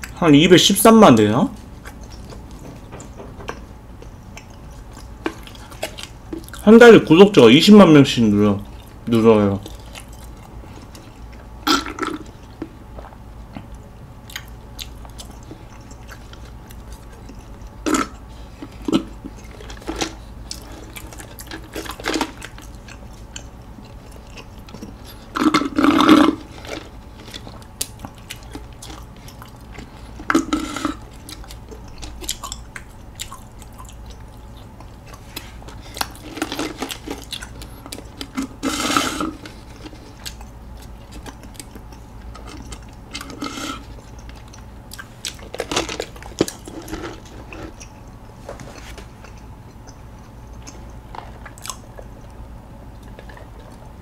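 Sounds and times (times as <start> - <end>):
chewing: 1.6 - 6.6, 8.6 - 54.0
slurping through a straw: 30.3 - 31.0, 38.3 - 40.0, 43.2 - 43.9.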